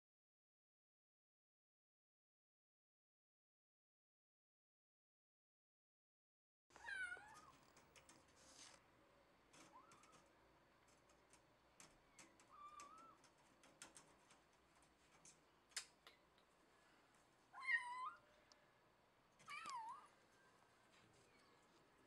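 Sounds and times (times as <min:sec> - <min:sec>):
faint clicks and taps: 0:06.7 - 0:08.8, 0:09.5 - 0:16.5
cat meowing: 0:06.8 - 0:07.6, 0:12.2 - 0:13.2, 0:17.5 - 0:18.2, 0:19.5 - 0:20.2.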